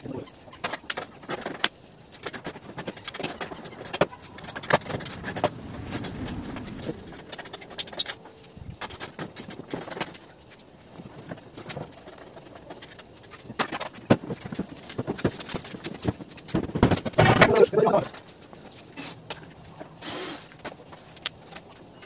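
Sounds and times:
metal tools rattling on plastic: 0.2s - 6.4s, 8.8s - 18.2s.

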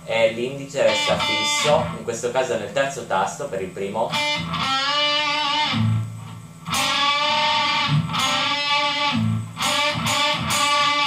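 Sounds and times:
electric guitar double-stops: 4.1s - 11.0s.

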